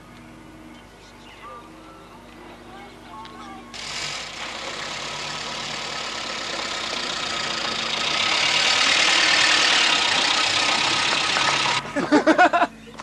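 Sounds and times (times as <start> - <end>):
tyres on gravel: 3.1 - 13.0
car engine running: 3.8 - 12.0.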